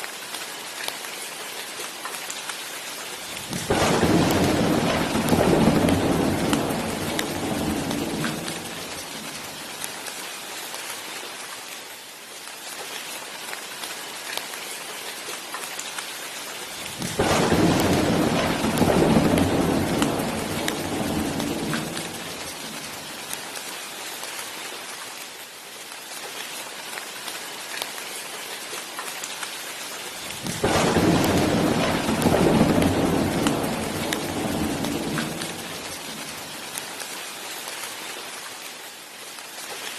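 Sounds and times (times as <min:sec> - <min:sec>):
steady rain: 0:00.0 - 0:39.9
thunder rumbling: 0:03.3 - 0:09.8, 0:16.9 - 0:23.2, 0:30.2 - 0:36.8.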